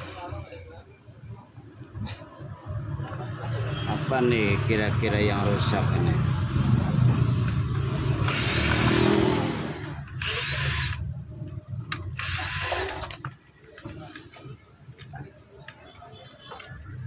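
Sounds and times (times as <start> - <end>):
cordless drill whining: 8.2 - 9.2, 10.2 - 11.0, 12.1 - 13.2.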